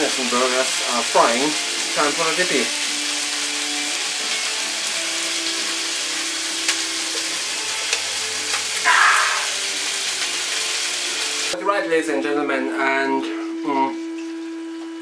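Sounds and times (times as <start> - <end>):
patties sizzling in a frying pan: 0.0 - 11.6.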